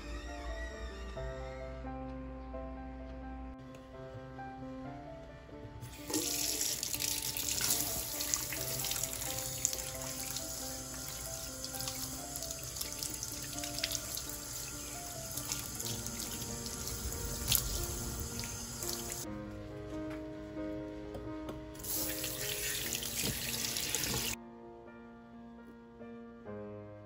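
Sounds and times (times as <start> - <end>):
tap water running into basin: 5.8 - 19.3, 21.8 - 24.4.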